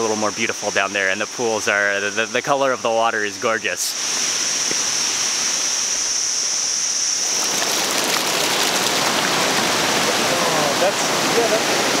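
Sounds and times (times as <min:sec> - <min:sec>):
water rushing over cascades: 0:07.2 - 0:12.0.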